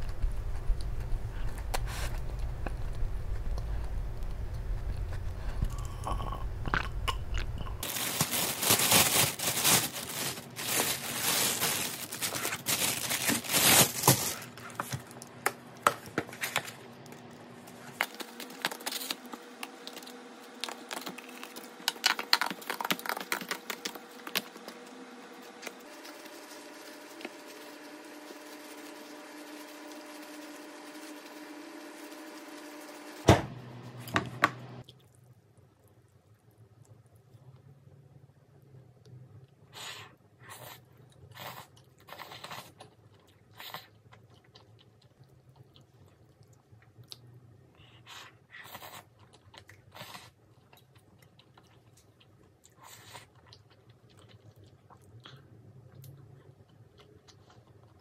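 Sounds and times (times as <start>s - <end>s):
faint steady hum: 0.0s - 58.0s
paper crinkling and tearing: 7.8s - 15.1s, 17.9s - 24.7s.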